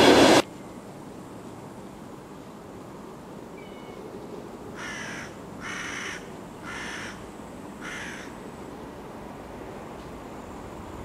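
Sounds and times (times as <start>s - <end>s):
low background noise: 0.4s - 11.0s
crow cawing: 4.8s - 7.2s, 7.8s - 8.4s.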